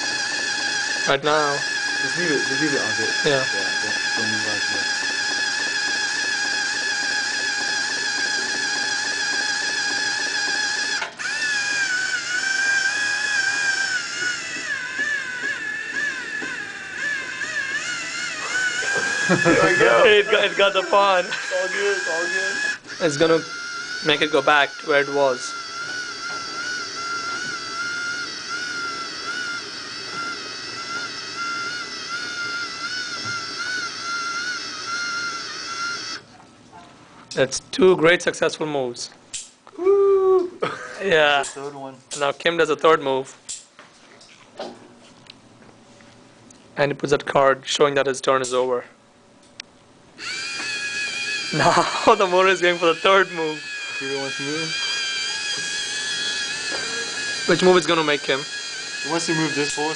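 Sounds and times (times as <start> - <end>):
high-pitched motor whining: 0.0 - 36.3, 50.2 - 59.9.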